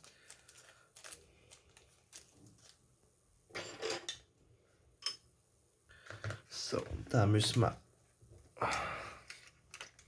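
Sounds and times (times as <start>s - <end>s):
plastic bag rustling: 0.0s - 2.9s.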